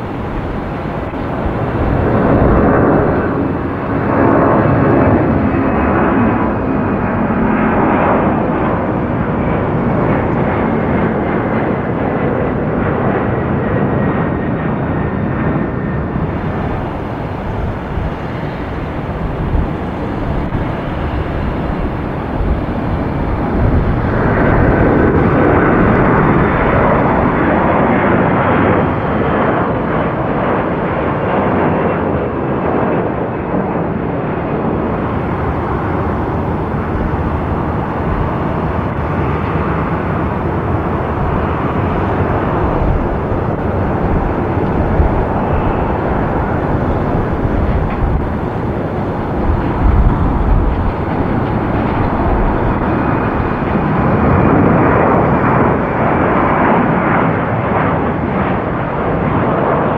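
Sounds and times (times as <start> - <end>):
high whine falling in pitch: 0.0 - 8.9, 16.2 - 27.3, 34.8 - 55.1
jet airliner engines roaring: 0.0 - 59.9.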